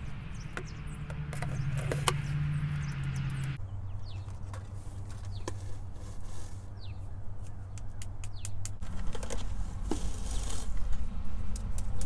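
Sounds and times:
brush scraping inside duct: 4.6 - 6.9, 8.8 - 11.1.

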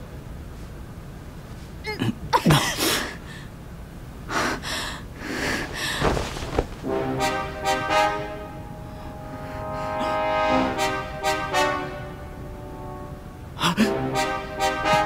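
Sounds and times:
person sneezing: 1.9 - 3.3
sustained music notes: 6.8 - 15.0.

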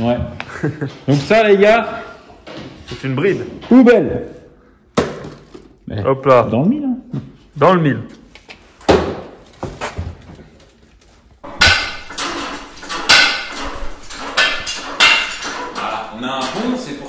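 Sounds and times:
metal tools clanking on bench: 11.4 - 17.0.

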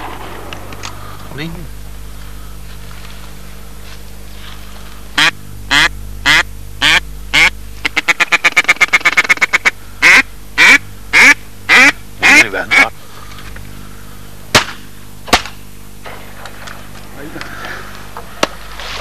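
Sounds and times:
duck quacking: 5.2 - 12.9.

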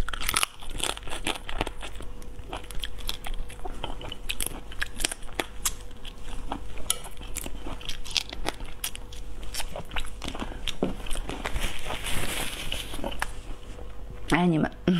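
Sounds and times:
shrimp shells cracking: 0.0 - 2.0
chewing: 0.0 - 13.7
faint steady hum: 0.0 - 14.9.

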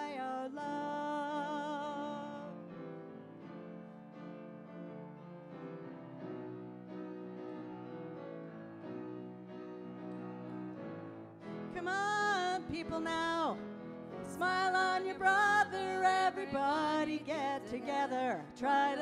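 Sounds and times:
woman singing with vibrato: 0.0 - 2.6, 11.7 - 13.6, 14.2 - 19.0
piano chords: 0.0 - 19.0.

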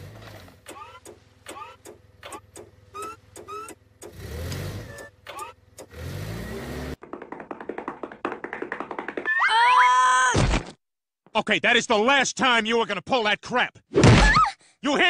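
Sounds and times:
cartoon engine revving: 0.6 - 7.0
short rising squeaks: 0.6 - 7.0.

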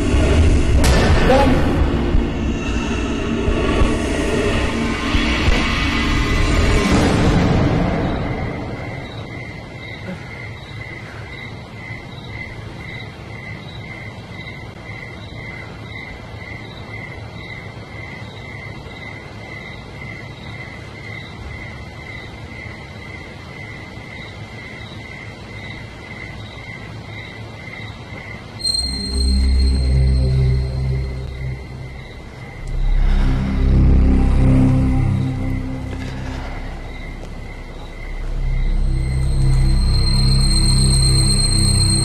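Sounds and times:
repeating high chirp: 28.6 - 32.3
low steady hum: 28.7 - 42.0.

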